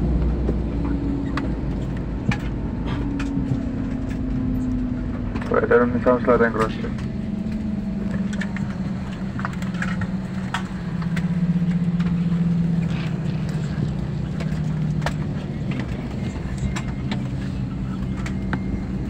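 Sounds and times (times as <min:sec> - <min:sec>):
airliner cabin drone: 0:00.0 - 0:19.0.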